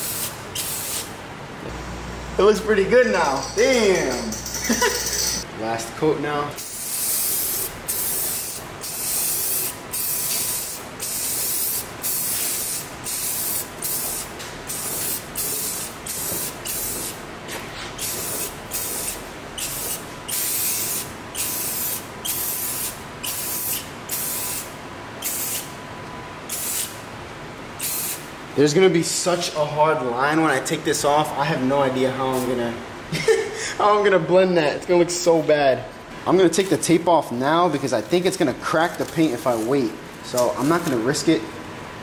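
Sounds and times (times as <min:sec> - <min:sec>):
spray paint can hissing: 0:00.0 - 0:01.1, 0:06.6 - 0:17.2, 0:18.0 - 0:25.7, 0:26.5 - 0:27.0, 0:27.8 - 0:28.2.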